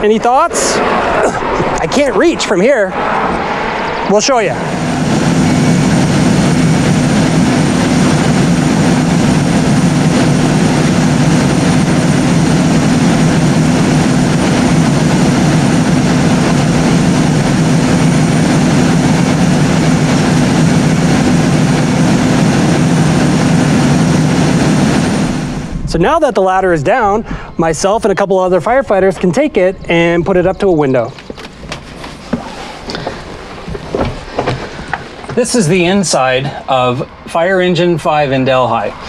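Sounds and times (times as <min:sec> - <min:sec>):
ladder rack mechanical hum: 0:00.0 - 0:25.9.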